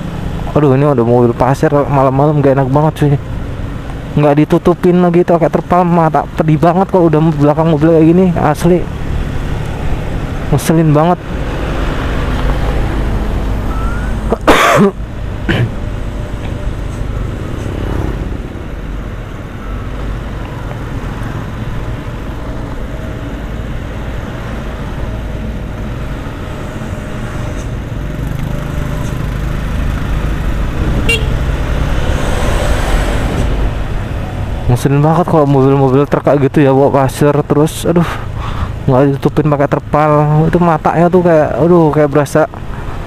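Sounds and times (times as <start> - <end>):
wind and road noise: 0.0 - 43.0
motorcycle engine rumble: 7.7 - 36.0.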